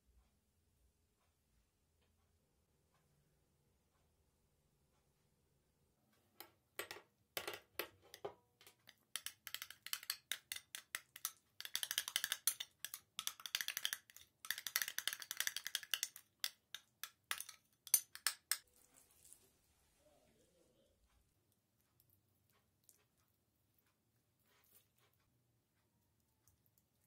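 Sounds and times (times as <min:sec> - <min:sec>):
metal spoon tapping glass bowl: 0:06.8 - 0:18.6
spoon scraping glass bowl: 0:08.0 - 0:16.2, 0:16.8 - 0:18.7.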